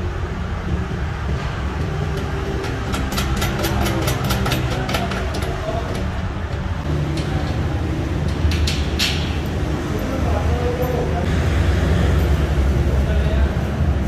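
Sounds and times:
workshop motor humming: 0:00.0 - 0:14.0.

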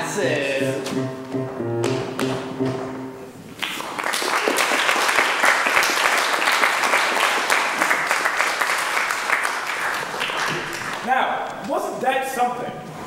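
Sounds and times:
audience applauding: 0:03.5 - 0:11.1.

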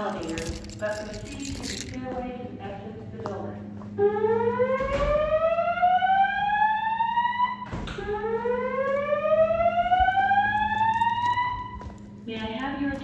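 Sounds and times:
fire alarm slow whoop tone: 0:04.0 - 0:11.8.

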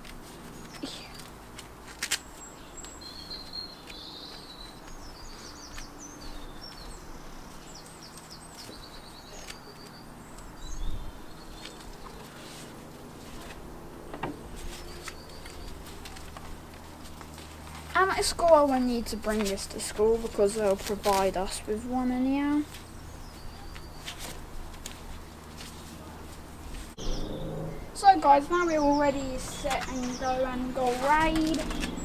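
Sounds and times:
sharp clicks of gloves: 0:00.0 - 0:05.0
small birds chirping: 0:00.3 - 0:32.0
gloves rustling: 0:14.4 - 0:23.0, 0:28.8 - 0:32.0.

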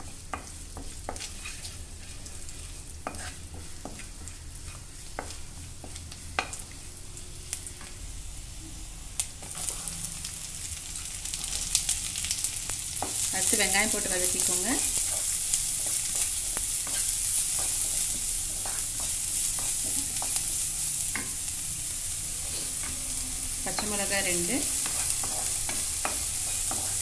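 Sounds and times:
garlic sizzling in butter: 0:00.0 - 0:27.0
wooden spatula scraping pan: 0:00.4 - 0:06.0.

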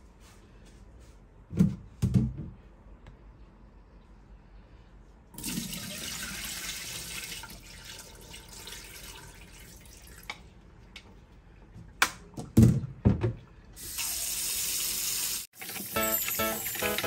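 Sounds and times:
tap water running into a bowl: 0:05.4 - 0:10.4, 0:13.8 - 0:17.0
water splashing into a sink: 0:05.4 - 0:10.4.

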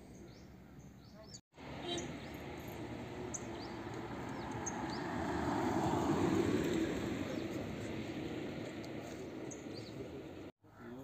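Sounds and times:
bird chirps: 0:00.0 - 0:05.1
car driving past: 0:01.6 - 0:10.5.

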